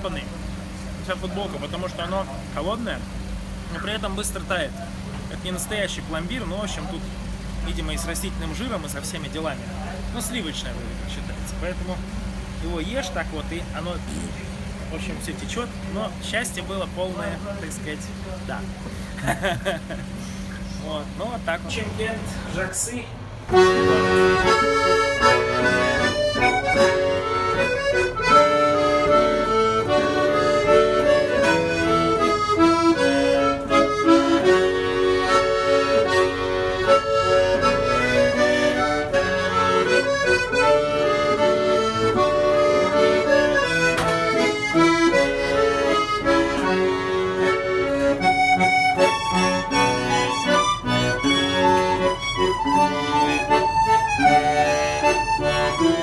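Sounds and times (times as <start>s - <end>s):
button accordion playing folk tune: 23.5s - 56.0s
lute strummed: 23.5s - 56.0s.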